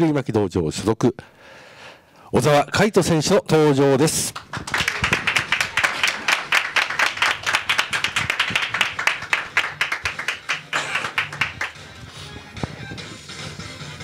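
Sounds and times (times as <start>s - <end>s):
audience applauding: 4.3s - 12.0s.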